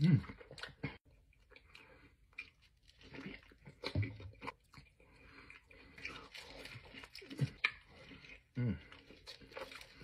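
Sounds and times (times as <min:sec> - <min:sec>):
wet chewing and lip smacks: 0:00.2 - 0:10.0.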